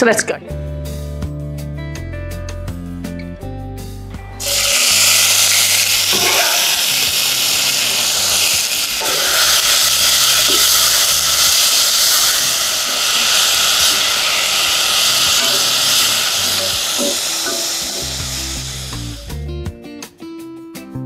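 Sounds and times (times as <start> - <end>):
onion sizzling in hot oil: 4.4 - 19.4.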